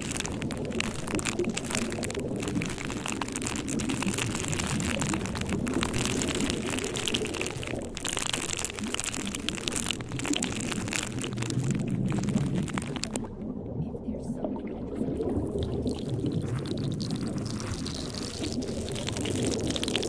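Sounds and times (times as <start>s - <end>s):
steady rain: 0.0s - 13.3s.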